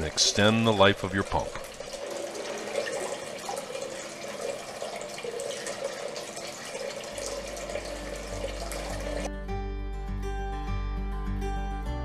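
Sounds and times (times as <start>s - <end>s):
fountain pump running: 0.0s - 9.3s
water trickling and splashing: 0.0s - 9.3s.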